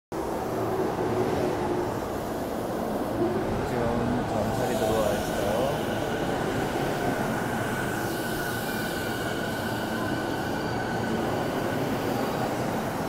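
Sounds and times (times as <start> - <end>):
train wheels rumbling on rails: 0.2 - 13.0.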